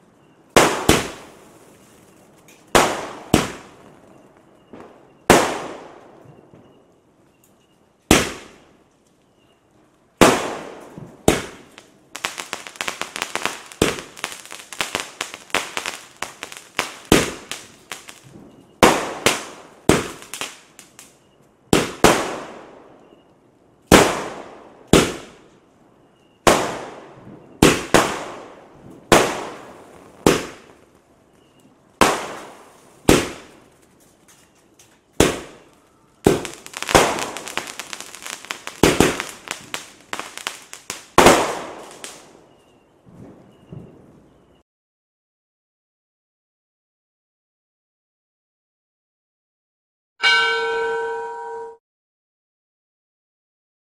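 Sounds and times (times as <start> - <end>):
fireworks bangs: 0.5 - 6.8, 8.1 - 8.7, 10.2 - 22.9, 23.9 - 25.4, 26.4 - 33.8, 34.4 - 44.0
rapid firework crackling: 0.6 - 1.8, 2.8 - 3.8, 10.2 - 21.1, 27.6 - 30.9, 32.0 - 33.8, 35.2 - 42.3.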